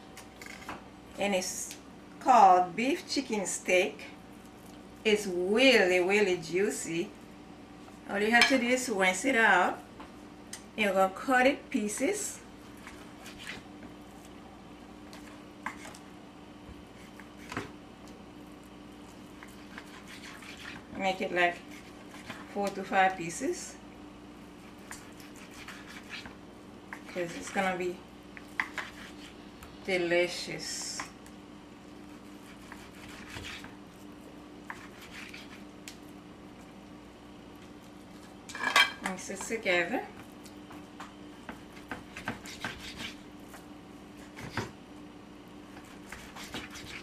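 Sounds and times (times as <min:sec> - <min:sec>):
faint steady hum: 0:00.0 - 0:47.0
knife cutting meat: 0:12.8 - 0:13.6, 0:19.3 - 0:20.9, 0:21.5 - 0:22.7, 0:24.6 - 0:27.6, 0:28.5 - 0:29.4, 0:32.1 - 0:34.0, 0:34.6 - 0:35.7, 0:41.5 - 0:43.6, 0:45.7 - 0:47.0.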